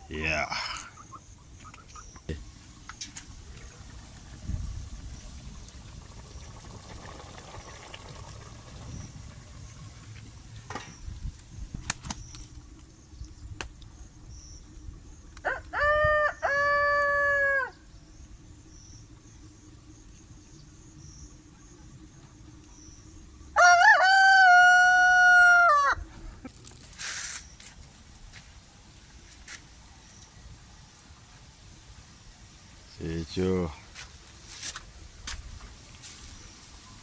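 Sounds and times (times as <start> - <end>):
rooster crowing: 15.4 - 17.9, 23.5 - 26.1.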